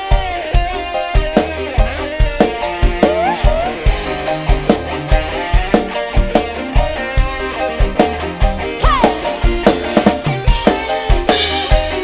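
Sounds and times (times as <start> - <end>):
band playing instrumental: 0.0 - 12.0
drum kit beat: 0.0 - 12.0
pitch-bending melody line: 1.9 - 7.5.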